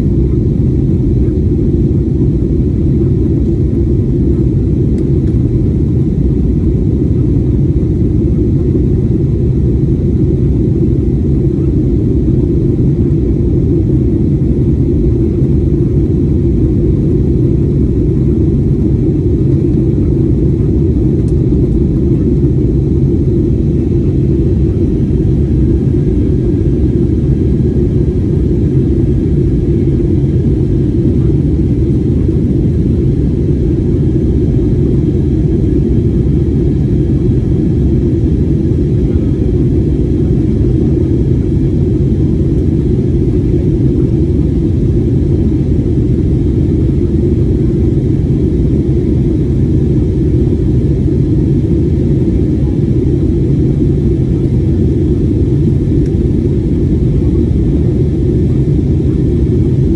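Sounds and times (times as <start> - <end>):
airliner cabin engine rumble: 0.0 - 59.9.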